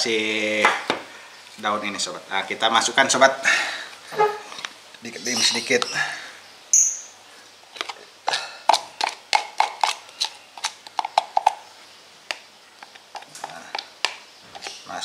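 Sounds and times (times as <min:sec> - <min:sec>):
metal spoon tapping on cups: 0:08.3 - 0:11.6.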